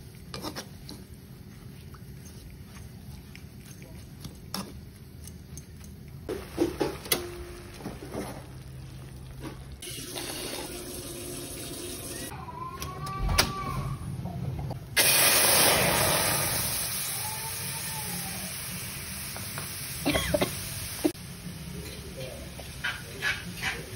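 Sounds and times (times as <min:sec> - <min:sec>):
spice paste sizzling in oil: 0:15.0 - 0:23.7.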